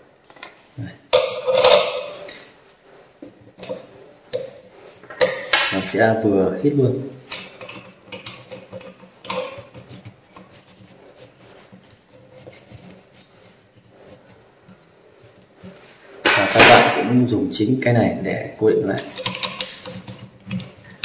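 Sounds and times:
felt wheel rubbing on spindle: 7.6 - 16.2.

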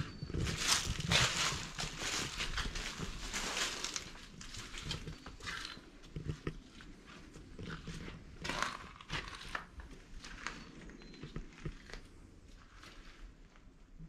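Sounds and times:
footsteps scuffing on dirt: 0.0 - 10.7.

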